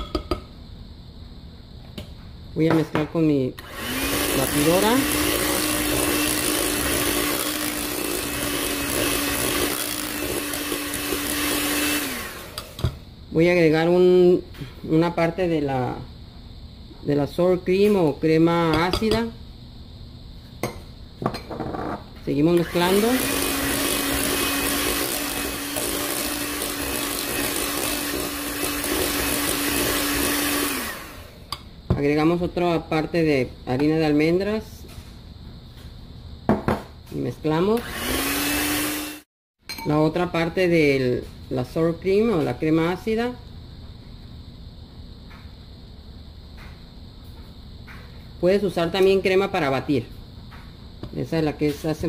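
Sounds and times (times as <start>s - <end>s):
beaters churning batter in bowl: 3.6s - 12.8s, 22.5s - 31.2s
electric hand mixer running: 3.6s - 12.9s, 22.5s - 31.5s, 37.8s - 39.3s.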